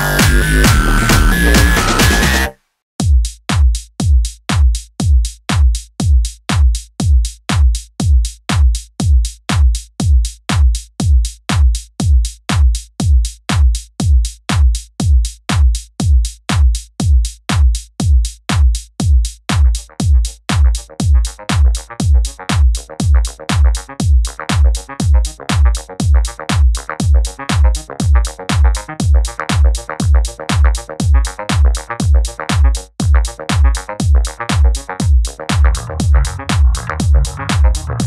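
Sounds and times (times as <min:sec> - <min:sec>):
electronic music with kick drum: 0:00.0 - 0:38.0.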